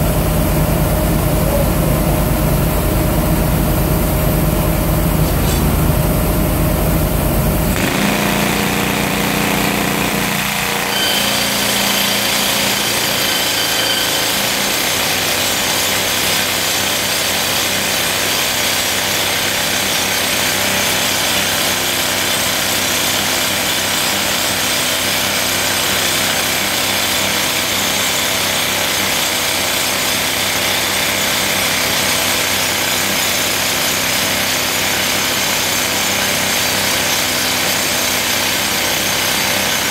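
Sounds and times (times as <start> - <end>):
machine engine running: 0.0 - 17.2
rock drill drilling into rock: 7.7 - 39.9.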